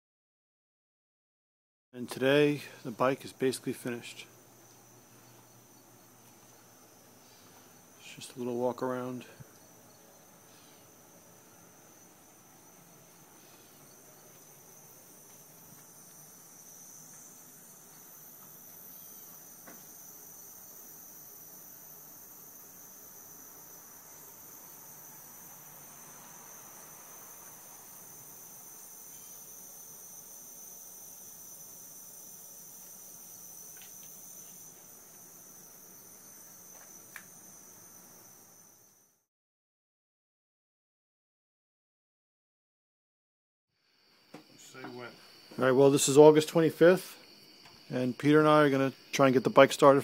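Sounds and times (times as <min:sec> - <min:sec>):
high-pitched insect chorus: 0:02.2 - 0:39.3, 0:43.8 - 0:50.0
faint high-pitched whine: 0:43.8 - 0:50.0.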